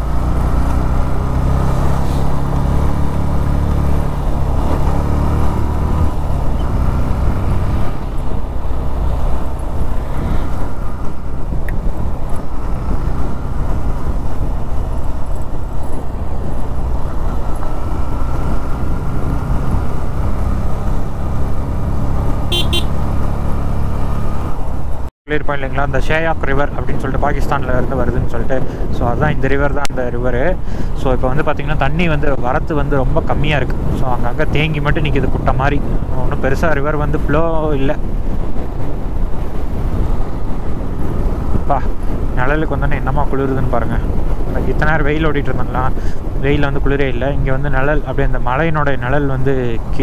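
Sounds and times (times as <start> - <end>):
motorcycle engine running: 0.0 - 25.1
wind noise on microphone: 0.0 - 25.1, 25.8 - 50.0
motorcycle horn toot: 22.4 - 23.0.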